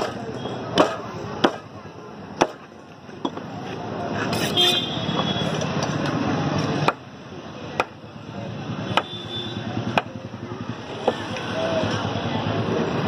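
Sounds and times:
knife chopping meat on wood: 0.0s - 1.7s
steady background noise: 0.0s - 13.0s.

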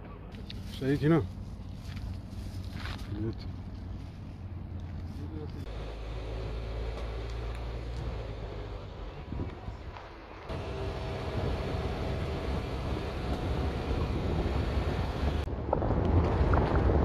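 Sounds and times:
car engine and tyre rumble: 0.1s - 17.0s
wind noise: 9.1s - 17.0s.

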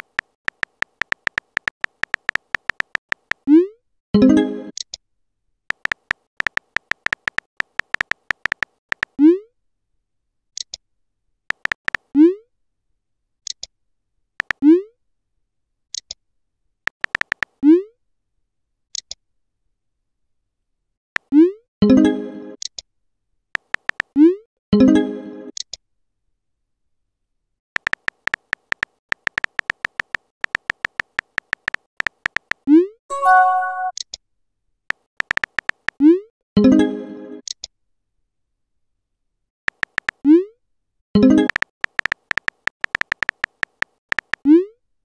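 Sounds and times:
keyboard tap clicks: 0.0s - 3.4s, 5.7s - 9.1s, 11.5s - 12.0s, 16.9s - 17.5s, 23.6s - 24.1s, 27.8s - 32.6s, 39.7s - 40.2s, 41.4s - 44.4s.

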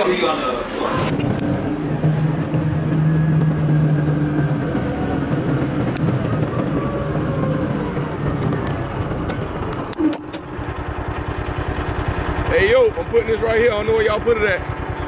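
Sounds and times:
utility cart humming: 0.0s - 15.0s.

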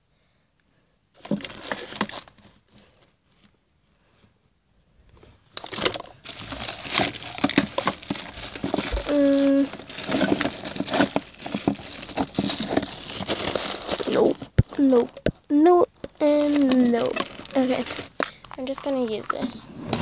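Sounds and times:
plastic bags crinkling: 1.2s - 2.4s, 5.5s - 19.6s
small objects knocking together: 5.6s - 15.4s.

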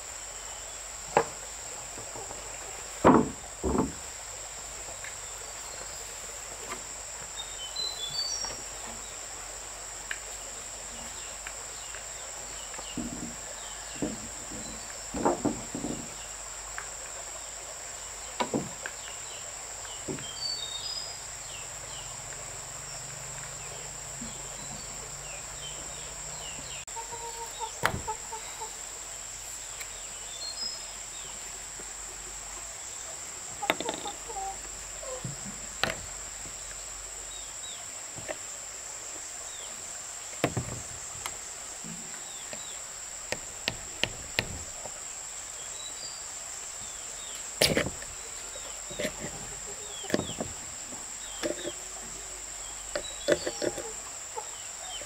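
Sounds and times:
insects buzzing: 0.0s - 55.0s
sharp knocks and taps: 43.3s - 45.0s.

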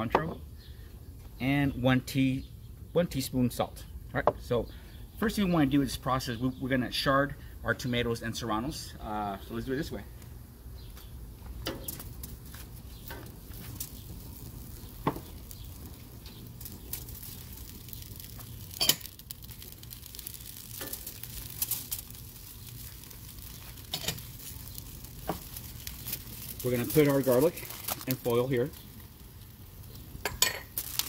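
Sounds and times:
faint steady gas hiss: 0.0s - 31.0s
foil crinkling: 11.9s - 31.0s
vegetables knocking on grill: 15.0s - 15.6s.

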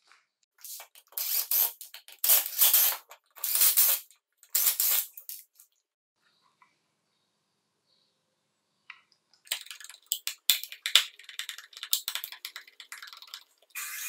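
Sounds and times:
screwdriver clicking and scraping: 0.6s - 5.6s
small motor whirring: 13.8s - 14.0s.

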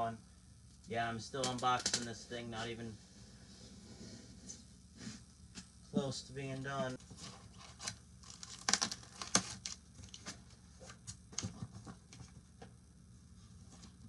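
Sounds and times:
cardboard tearing and knocking: 7.0s - 10.4s.

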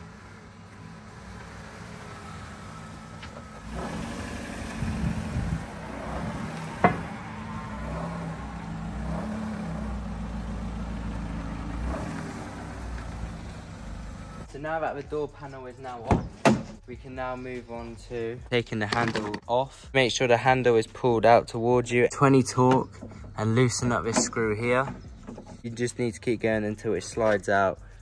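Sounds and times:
car engine running at low revs: 0.0s - 14.5s.

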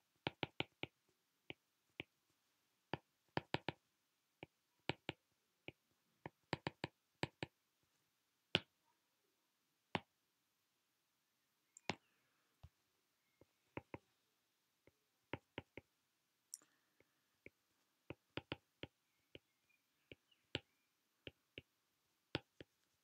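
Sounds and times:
stylus tapping on glass screen: 0.3s - 0.9s, 2.9s - 3.8s, 4.9s - 7.5s, 13.4s - 14.1s, 16.6s - 19.5s, 20.1s - 21.7s, 22.3s - 22.7s.

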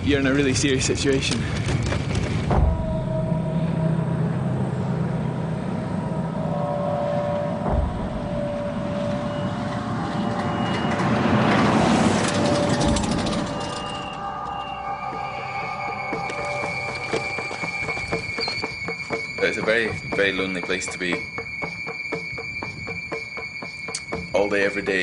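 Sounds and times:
steady low hum: 2.2s - 20.1s.

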